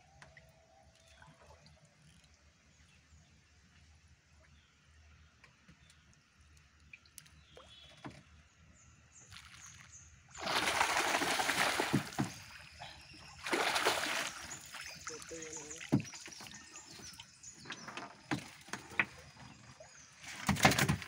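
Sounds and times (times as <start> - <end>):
fish splashing in net: 10.4 - 12.8, 13.4 - 15.0
light knocks on canoe: 15.8 - 16.6.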